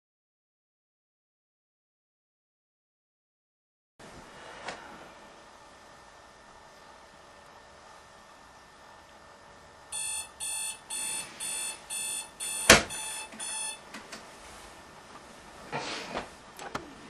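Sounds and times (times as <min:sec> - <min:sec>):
alarm clock beeping: 0:09.9 - 0:13.8.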